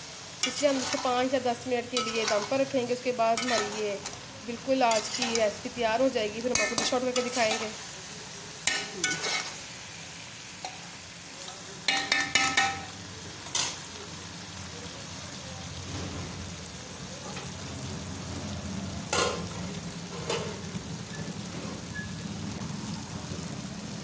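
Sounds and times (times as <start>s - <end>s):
food sizzling in a pot: 0.0s - 24.0s
metal spoon scraping a pot: 0.4s - 1.2s, 1.9s - 2.7s, 3.4s - 4.2s, 4.9s - 5.5s, 6.5s - 7.8s, 8.7s - 9.6s.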